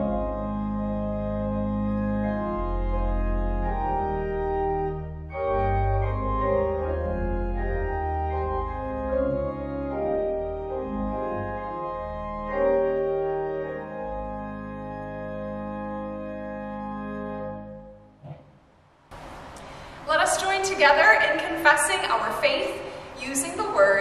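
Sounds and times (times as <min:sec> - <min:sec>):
organ playing hymn chords: 0:00.0 - 0:18.2.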